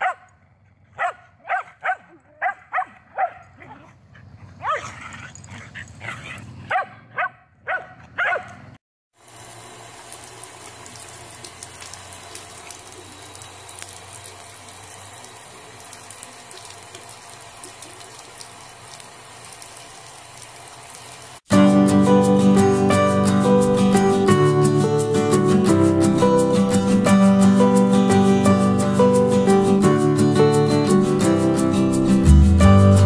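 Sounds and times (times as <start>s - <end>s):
dog barking: 0.0s - 8.6s
faucet running into sink: 9.2s - 21.4s.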